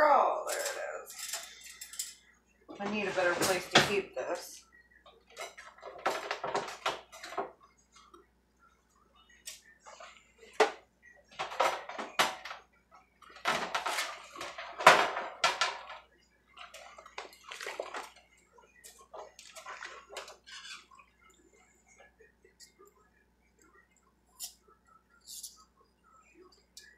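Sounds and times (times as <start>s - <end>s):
dishes knocking and clinking: 5.3s - 7.6s, 10.5s - 12.6s, 13.3s - 18.2s
water sloshing in sink: 16.6s - 18.2s, 19.1s - 20.6s.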